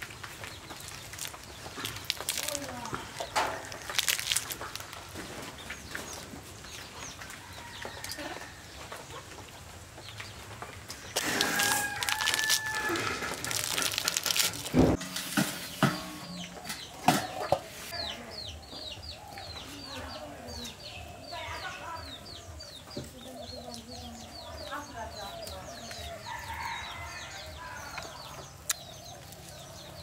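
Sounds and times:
chickens clucking: 0.2s - 26.8s
rooster crowing: 11.2s - 13.6s, 26.1s - 28.2s.

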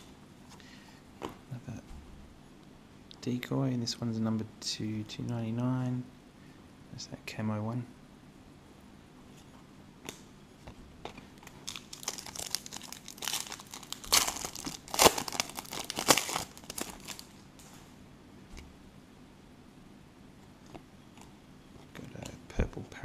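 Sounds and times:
foil wrapper tearing and crinkling: 11.4s - 17.4s.

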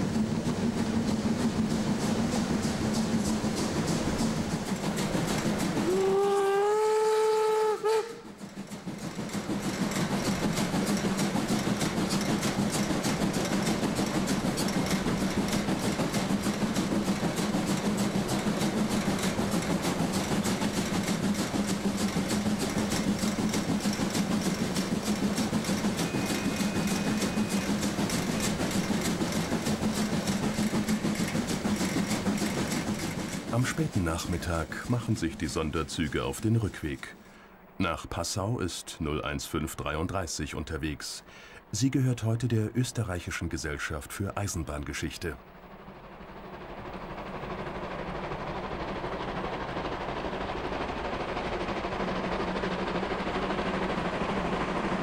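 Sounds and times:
steam locomotive exhaust beats: 0.0s - 55.0s
steam whistle blowing: 5.8s - 8.2s.

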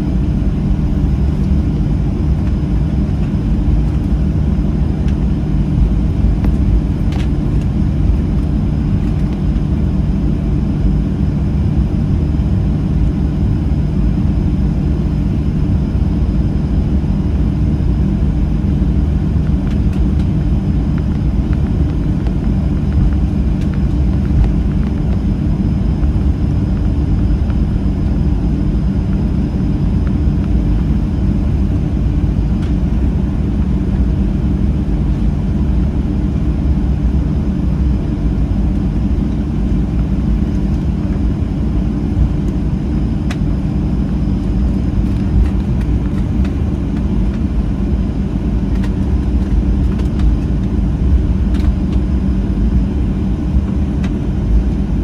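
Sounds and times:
low rumble in aircraft cabin: 0.0s - 55.0s.

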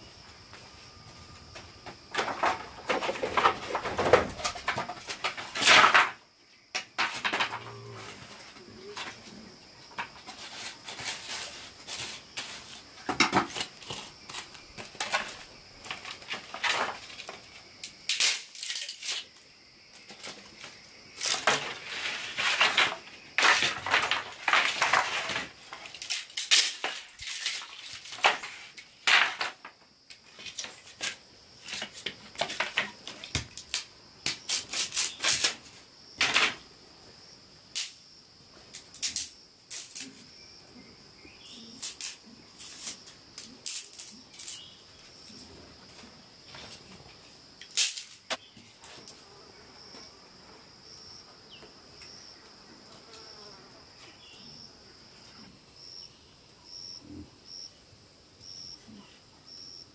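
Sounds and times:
objects crunching and clattering: 21.2s - 29.8s.

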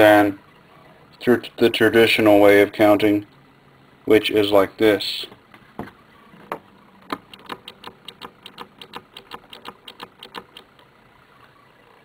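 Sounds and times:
small switch clicking: 7.2s - 10.7s.

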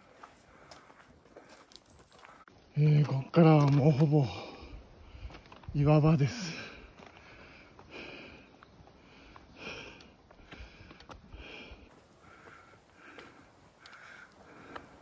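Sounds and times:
person breathing hard: 0.2s - 2.4s, 6.5s - 15.0s.

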